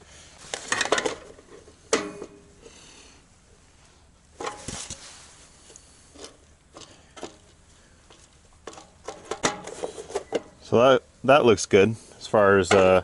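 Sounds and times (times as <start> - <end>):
cover plate clicks and rattles: 8.6 - 10.5.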